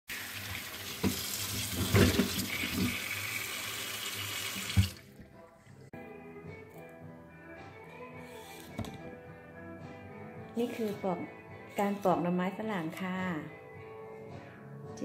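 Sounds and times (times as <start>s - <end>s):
tap water running into sink: 0.1s - 5.1s.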